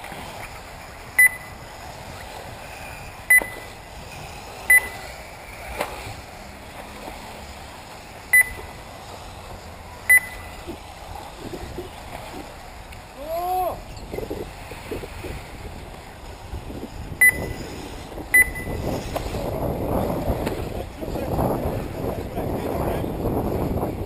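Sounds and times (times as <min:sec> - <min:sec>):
short electronic beeps: 0:01.2 - 0:01.6, 0:03.3 - 0:03.7, 0:04.7 - 0:05.0, 0:08.3 - 0:08.8, 0:10.1 - 0:10.6, 0:17.2 - 0:17.6, 0:18.3 - 0:18.8.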